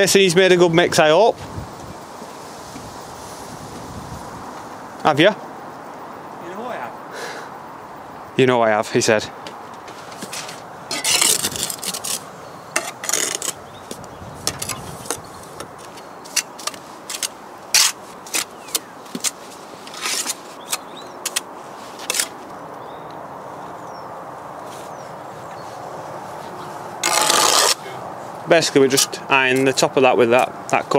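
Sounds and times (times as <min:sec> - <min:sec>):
trowel scraping and tapping brick: 0:10.2 - 0:22.3.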